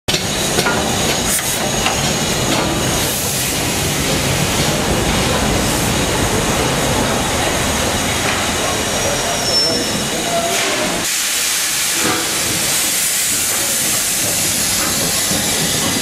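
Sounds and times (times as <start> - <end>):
train wheels rumbling: 0.1 - 16.0
escaping steam: 0.2 - 16.0.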